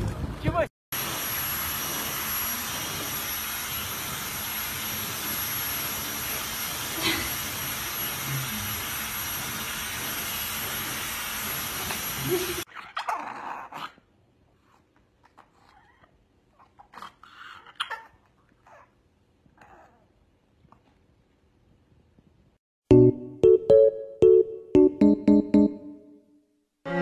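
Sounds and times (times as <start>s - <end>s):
hair dryer blowing: 1.0s - 12.7s
puppy whimpering: 15.3s - 19.0s, 19.6s - 20.1s.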